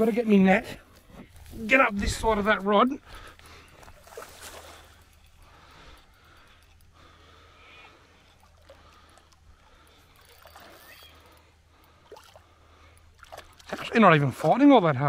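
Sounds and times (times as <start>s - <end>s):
fish splashing in water: 13.2s - 14.5s.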